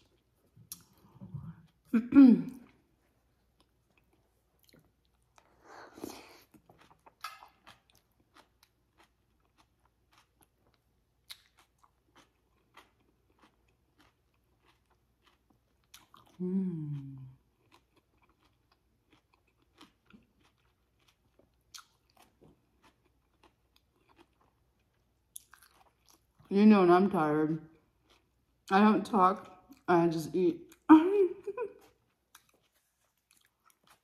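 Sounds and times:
person chewing food: 0.0 - 26.5, 27.7 - 28.7, 31.5 - 34.0
hum through closed lips: 16.3 - 17.4.

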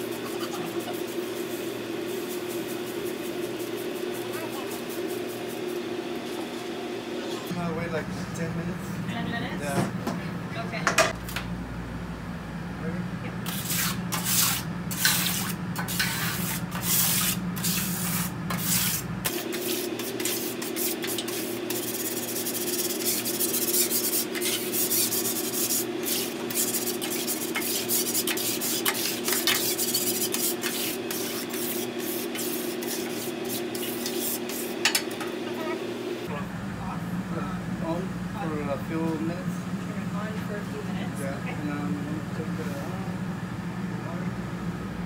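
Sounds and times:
steady hum: 0.0 - 45.0
scouring pad scrubbing steel griddle: 13.5 - 35.0.

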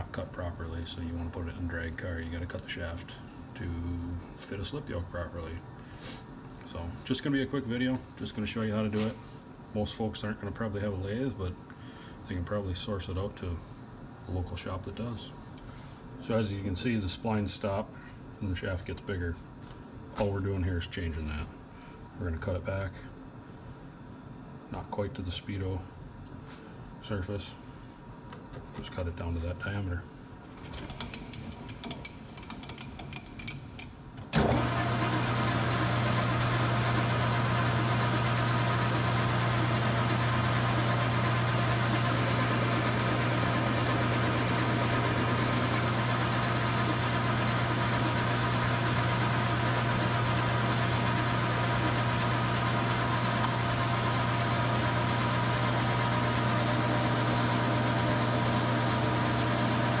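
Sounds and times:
metal lathe running: 34.4 - 60.0.

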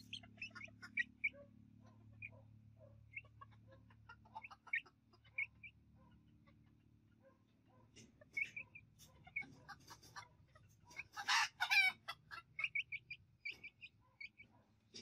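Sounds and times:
chickens chirping and clucking: 0.0 - 15.0
chicken harsh call: 11.1 - 12.5.

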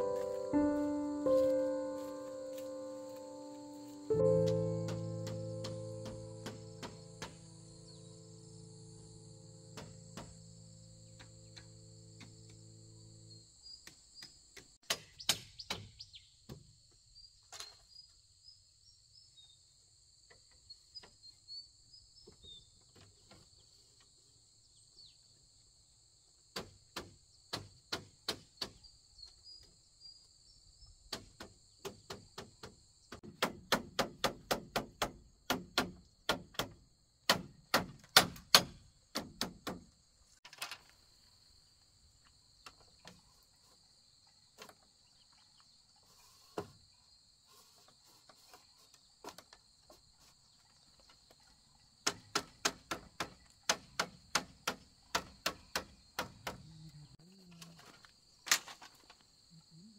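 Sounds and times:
insects chirring: 0.0 - 14.8, 35.2 - 59.9
tool knocking on bamboo: 4.8 - 7.5, 9.7 - 10.4, 31.1 - 39.9, 52.0 - 56.7.

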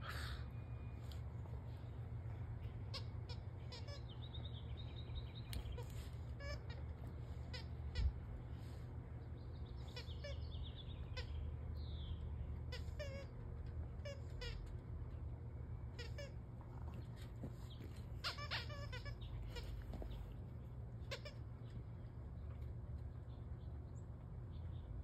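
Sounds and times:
squeaky dog toy squeaking: 2.9 - 4.2, 5.7 - 8.3, 11.1 - 11.4, 12.6 - 14.7, 15.9 - 16.5, 18.2 - 20.0, 21.0 - 21.4.

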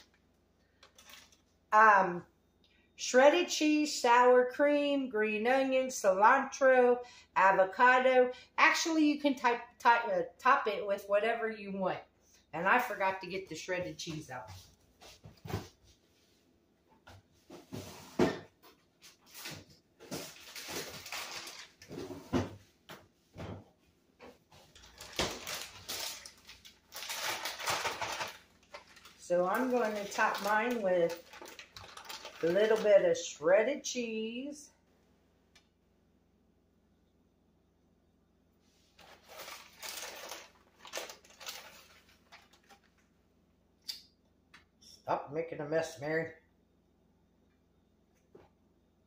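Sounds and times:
plastic bag crinkling: 0.0 - 1.6, 19.3 - 22.0, 24.7 - 33.3, 38.9 - 43.1
kitchen knocks and bumps: 23.3 - 23.7.

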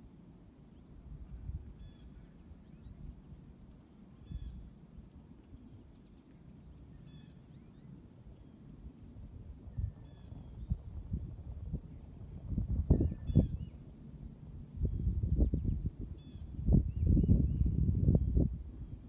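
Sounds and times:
crickets trilling: 0.0 - 19.0
wind rumble on microphone: 1.0 - 1.9, 9.2 - 19.0.

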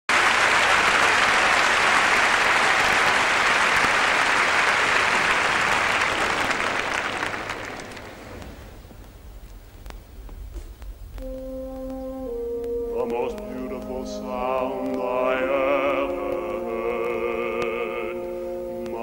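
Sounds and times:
large audience applauding: 0.1 - 8.4.

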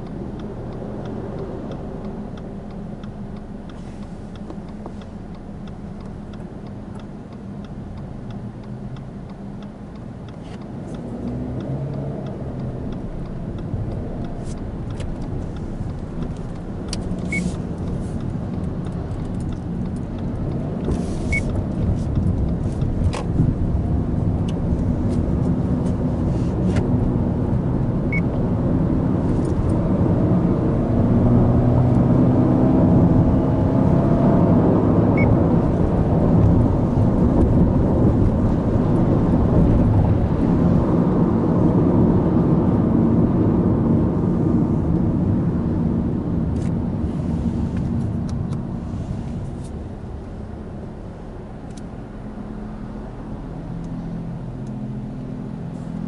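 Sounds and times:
car engine accelerating: 0.0 - 56.0
road noise: 0.0 - 56.0.

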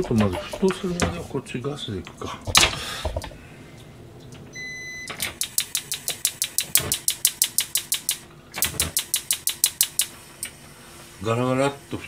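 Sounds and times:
spark igniter clicking: 5.2 - 10.5.

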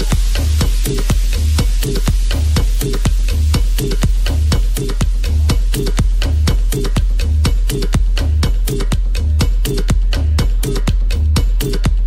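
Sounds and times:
techno house music: 0.0 - 12.0.

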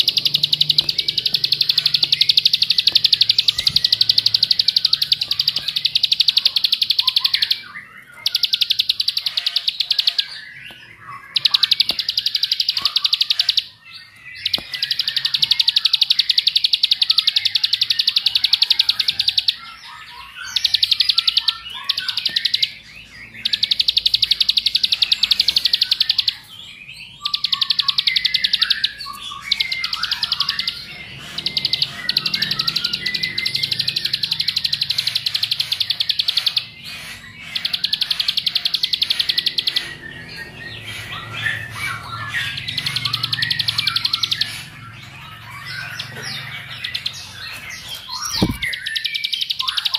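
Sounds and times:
bird high rapid trill: 0.0 - 49.9
bird soft chirps: 47.8 - 49.9.

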